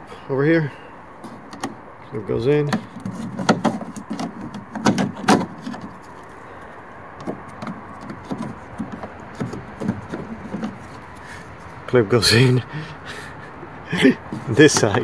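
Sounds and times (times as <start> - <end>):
light taps and rubs on plastic: 2.7 - 6.4, 7.2 - 11.9, 14.2 - 15.0.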